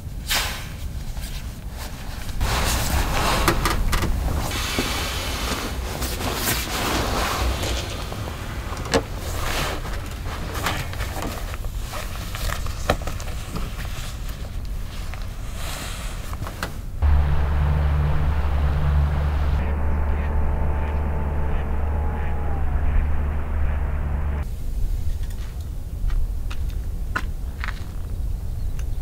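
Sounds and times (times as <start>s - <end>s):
camping gear rustling and knocking: 1.1s - 15.3s
steady low rumble: 2.0s - 6.0s, 17.0s - 24.9s.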